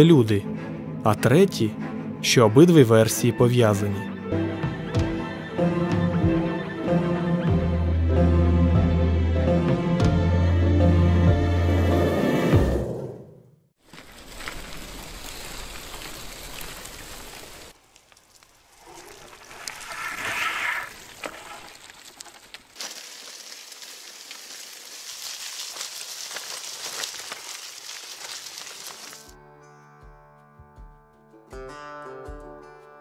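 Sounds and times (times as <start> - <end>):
bicycle tyres rolling on gravel: 13.8 - 29.3
bike rattling: 13.8 - 29.3.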